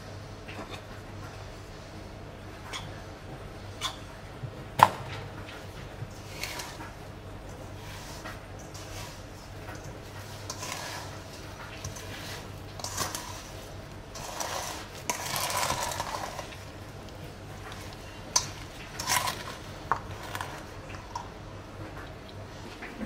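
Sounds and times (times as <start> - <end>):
utensils and dishes clinking: 5.1 - 22.1.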